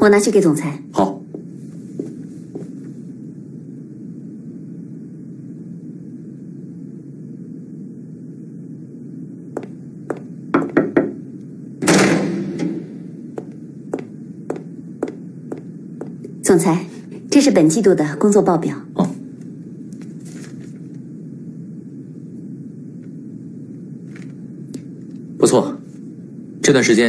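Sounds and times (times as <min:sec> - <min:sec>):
steady low hum: 0:00.0 - 0:27.0
knocks on door: 0:10.1 - 0:11.2.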